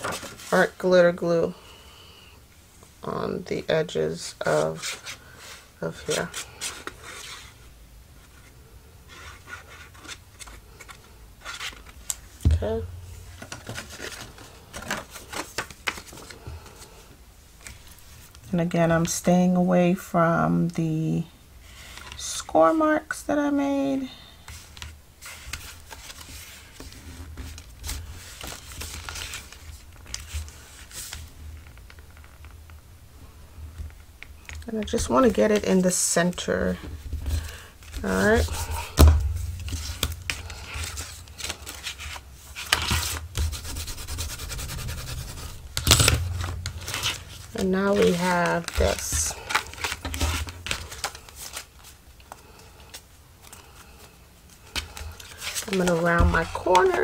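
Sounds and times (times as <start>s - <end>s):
paper rustling and crinkling: 0.0s - 0.8s, 8.2s - 17.0s, 24.5s - 32.8s, 33.8s - 57.0s.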